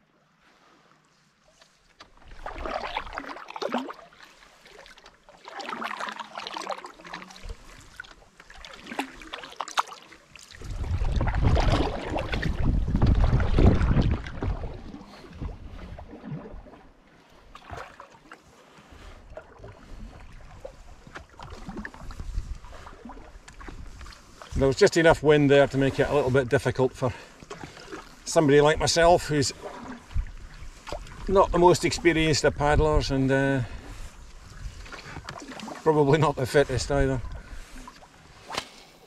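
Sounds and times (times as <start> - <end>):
paddle splashing through water: 0.2 - 39.0
wind rumble on microphone: 10.6 - 16.1, 19.8 - 22.8, 30.0 - 35.3.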